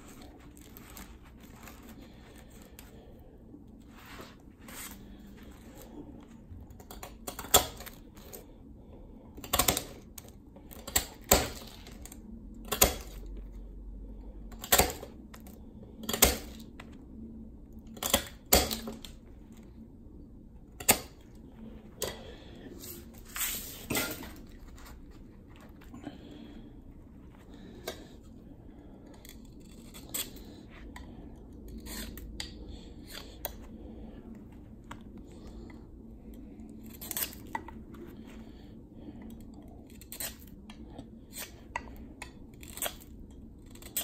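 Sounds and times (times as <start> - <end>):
knife scraping ice: 31.7 - 32.2.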